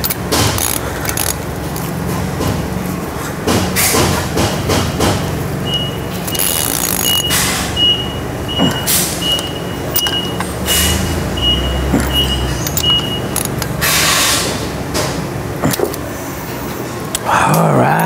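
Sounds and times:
wrench tightening nuts: 0.0s - 2.1s, 6.1s - 7.7s, 8.8s - 11.0s, 12.0s - 14.3s
sharp metal clicks: 0.0s - 2.6s, 4.7s - 7.8s, 8.8s - 16.1s
high electronic beep: 5.6s - 13.4s.

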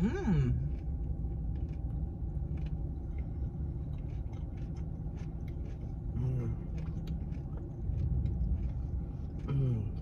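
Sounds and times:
car cabin rumble and hum: 0.0s - 10.0s
person chewing: 0.0s - 10.0s.

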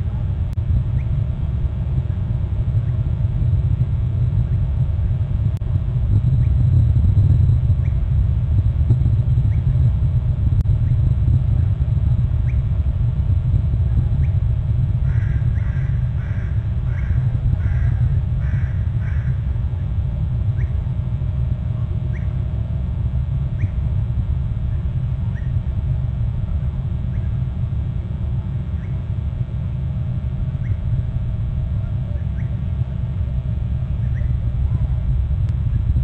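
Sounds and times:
wind rumble: 0.0s - 36.0s
bird calls: 0.9s - 1.2s, 7.8s - 8.1s, 9.3s - 9.8s, 12.4s - 12.7s, 15.0s - 19.4s, 20.6s - 20.8s, 22.1s - 22.4s, 23.6s - 23.8s, 25.3s - 25.6s, 28.8s - 29.0s, 30.6s - 30.9s, 32.2s - 32.6s, 34.0s - 34.4s
faint chirps: 6.2s - 12.9s, 13.8s - 19.4s, 20.4s - 21.3s, 21.9s - 26.0s, 27.0s - 34.9s.

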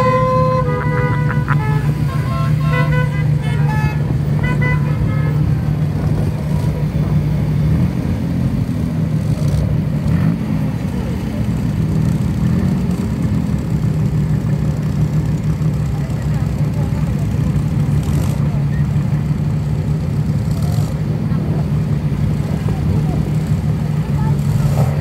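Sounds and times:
car horn toots: 0.0s - 5.8s
car engines running: 0.0s - 25.0s.

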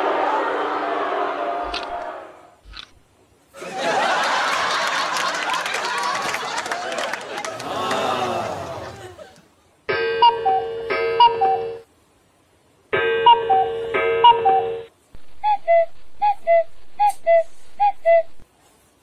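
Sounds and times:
steady hum: 8.4s - 18.4s
phone alert chimes: 9.9s - 11.8s, 13.0s - 14.9s.

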